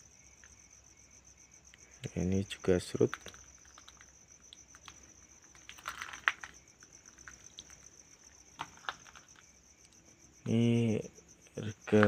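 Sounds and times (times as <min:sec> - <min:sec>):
crickets trilling: 0:00.0 - 0:12.0
rustling and clicks: 0:03.0 - 0:10.0.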